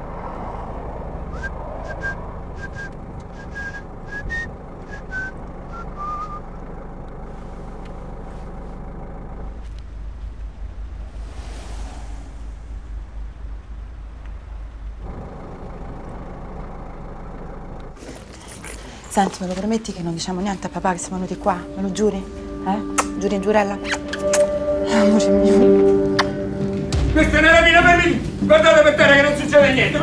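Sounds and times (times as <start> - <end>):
street traffic rumble: 0.0 - 30.0
broad rushing swell: 9.4 - 16.8.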